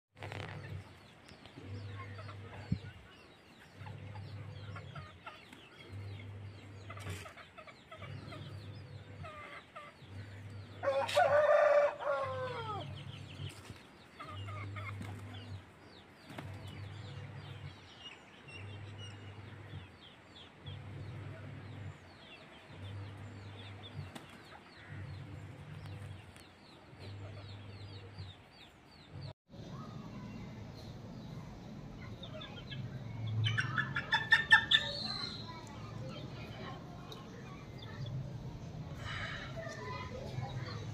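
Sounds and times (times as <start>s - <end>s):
pulsing low hum: 0.2s - 7.2s, 7.8s - 9.4s, 10.0s - 10.8s, 16.5s - 24.1s
rooster crowing: 10.8s - 12.9s.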